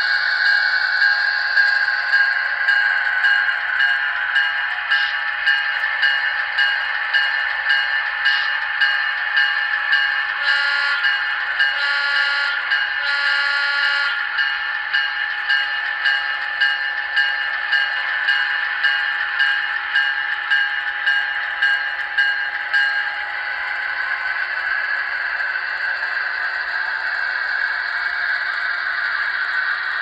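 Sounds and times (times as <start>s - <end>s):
locomotive bell ringing: 0.0s - 30.0s
model train engine running: 0.0s - 30.0s.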